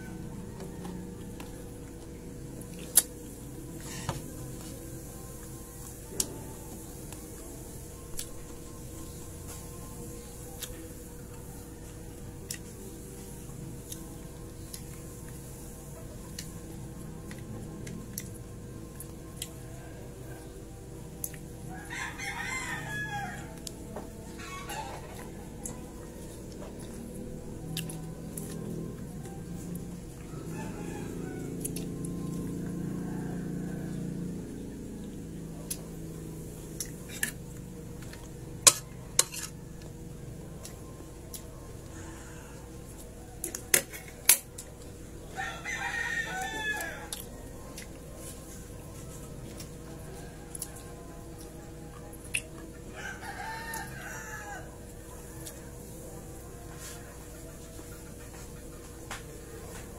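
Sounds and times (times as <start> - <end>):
rooster crowing: 0.0 - 1.7, 21.7 - 25.8, 28.5 - 34.9, 41.5 - 44.1, 45.2 - 52.0, 52.8 - 58.4.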